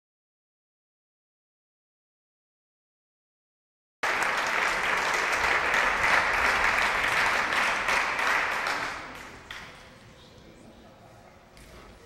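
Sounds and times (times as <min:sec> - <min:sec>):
audience clapping: 0:04.0 - 0:09.9.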